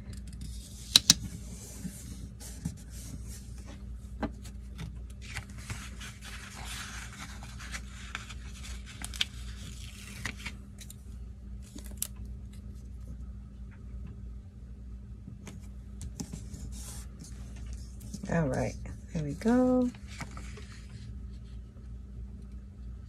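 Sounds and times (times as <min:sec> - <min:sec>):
paper rustling under fingers: 0:05.2 - 0:11.0, 0:19.9 - 0:21.6.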